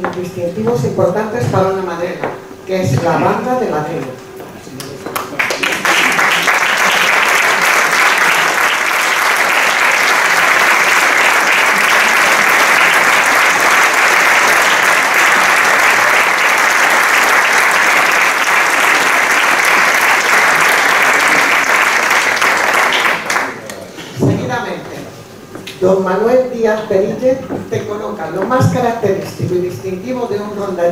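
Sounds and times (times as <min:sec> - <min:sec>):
audience applauding: 0:04.8 - 0:23.8.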